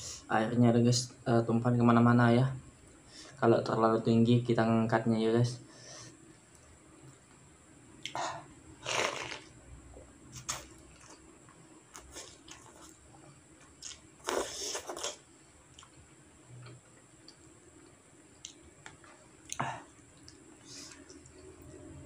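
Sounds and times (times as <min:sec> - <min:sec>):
person slurping noodles: 0:08.8 - 0:09.5, 0:14.2 - 0:15.2
quiet chewing: 0:10.3 - 0:21.7.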